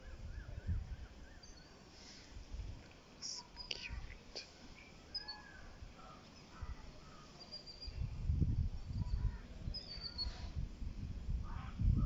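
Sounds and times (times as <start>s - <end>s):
low rumbling on microphone: 3.8s - 12.0s
high bird chirps: 5.1s - 8.1s, 8.8s - 10.5s.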